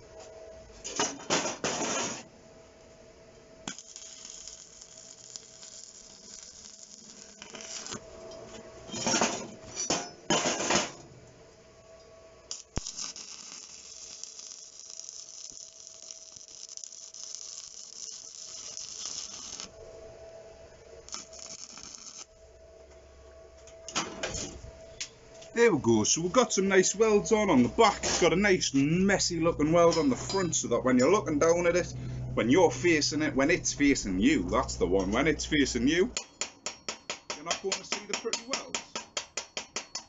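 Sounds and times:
welding arc crackling and hissing: 3.6 - 8.6, 12.4 - 19.8, 21.0 - 22.3.

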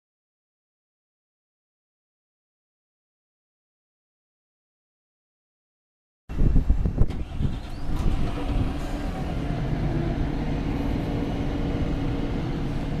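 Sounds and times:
diesel bus engine idling: 6.7 - 13.0.

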